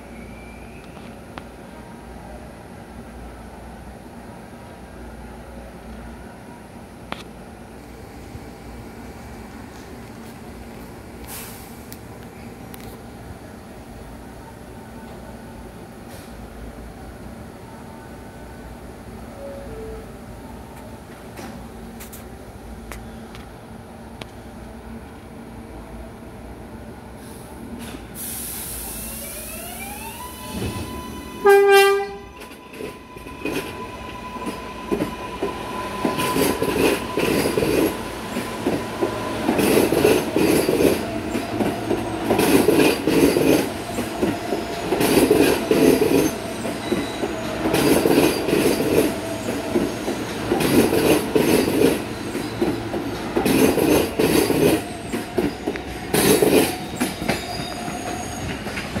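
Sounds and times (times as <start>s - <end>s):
subway train wheels clattering: 0.0s - 59.0s
train whine: 0.0s - 59.0s
train horn blast: 31.4s - 32.3s.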